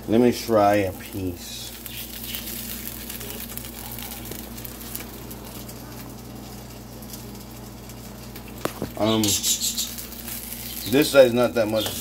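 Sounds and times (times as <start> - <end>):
pizza sizzling in a pan: 0.0 - 12.0.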